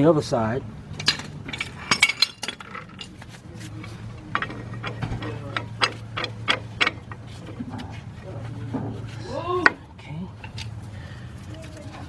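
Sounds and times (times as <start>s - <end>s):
low steady hum: 0.0s - 12.0s
metal tools clicking and clinking: 1.0s - 3.2s, 3.8s - 7.2s.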